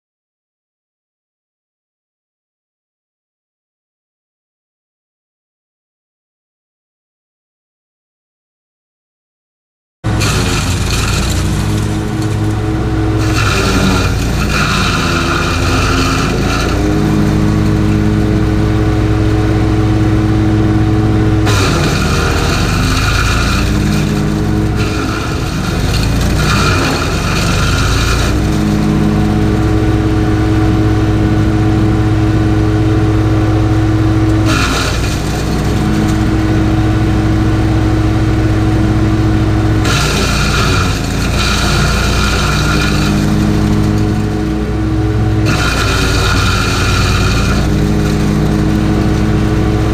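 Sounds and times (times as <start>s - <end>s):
branches being shredded: 10.1s - 18.6s, 21.4s - 29.5s, 34.4s - 36.5s, 39.8s - 44.6s, 45.4s - 49.9s
wood chipper engine running: 10.1s - 49.9s.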